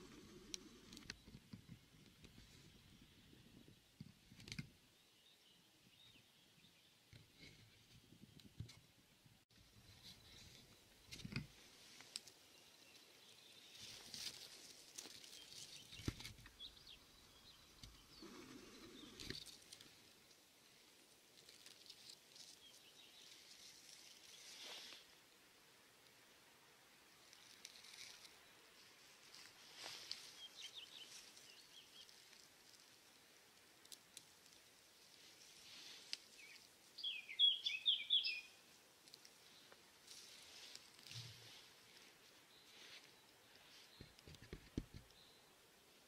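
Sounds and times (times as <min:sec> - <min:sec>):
faint clicks and rustles: 0:00.0 - 0:04.8, 0:07.1 - 0:17.0, 0:17.6 - 0:25.2, 0:27.2 - 0:36.9, 0:38.9 - 0:45.2
faint high bird chirps: 0:36.4 - 0:38.6.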